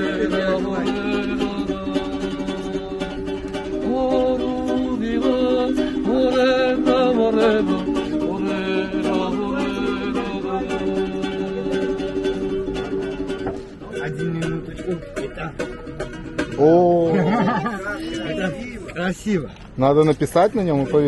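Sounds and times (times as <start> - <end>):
man singing: 0.0 - 12.5
plucked string instrument strummed: 0.0 - 18.9.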